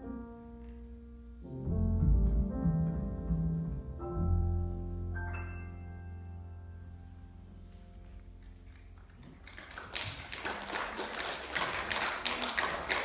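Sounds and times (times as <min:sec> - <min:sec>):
piano chord: 0:00.0 - 0:09.1
audience applauding: 0:08.7 - 0:13.0.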